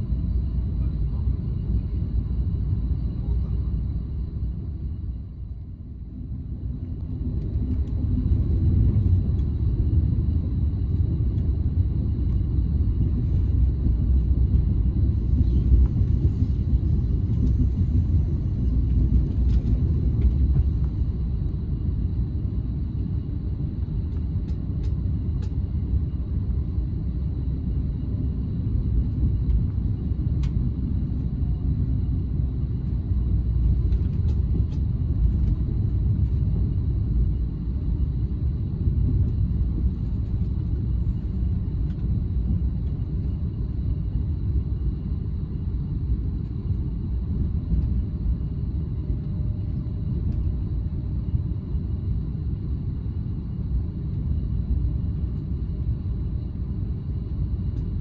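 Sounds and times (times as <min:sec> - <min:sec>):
train wheels rumbling on rails: 0:13.0 - 0:21.3.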